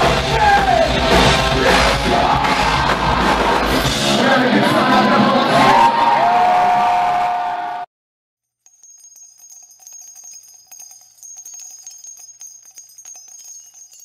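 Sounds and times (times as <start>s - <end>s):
small bells jingling: 8.5s - 14.0s.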